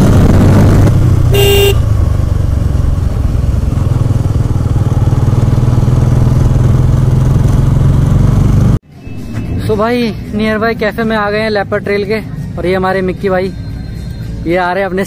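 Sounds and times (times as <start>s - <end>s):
motorcycle engine running: 0.0s - 8.8s
horn toot: 1.3s - 1.9s.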